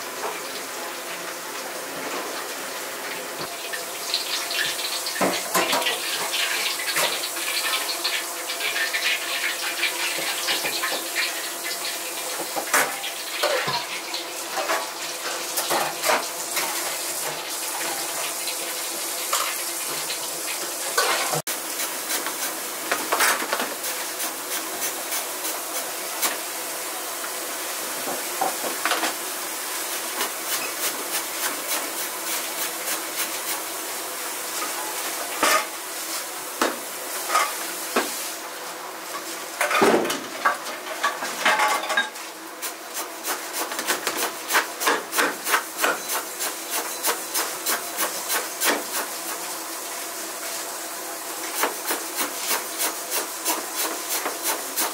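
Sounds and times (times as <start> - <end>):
steady kitchen hiss: 0.0 - 54.9.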